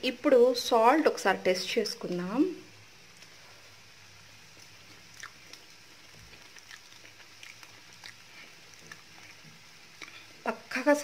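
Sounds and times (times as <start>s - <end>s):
person chewing: 4.6s - 10.3s.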